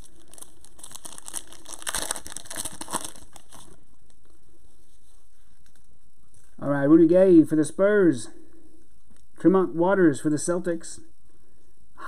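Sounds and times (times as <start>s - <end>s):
foil wrapper tearing and crinkling: 0.0s - 3.8s.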